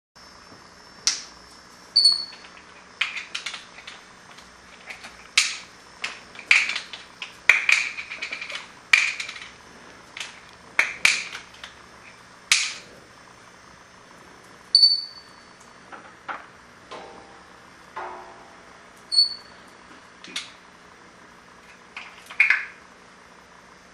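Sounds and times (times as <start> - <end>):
parrot peeping: 2.0 - 2.4, 14.7 - 15.6, 19.1 - 19.7.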